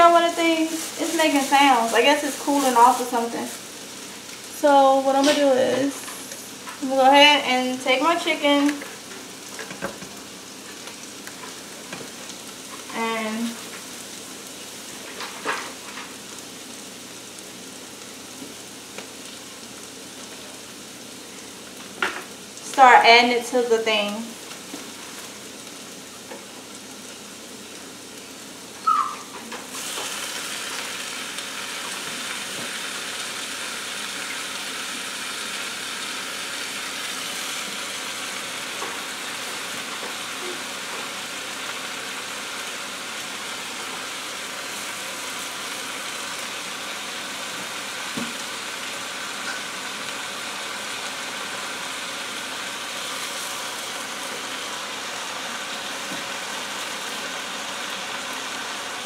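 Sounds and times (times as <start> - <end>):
food sizzling in pot: 0.0 - 59.0.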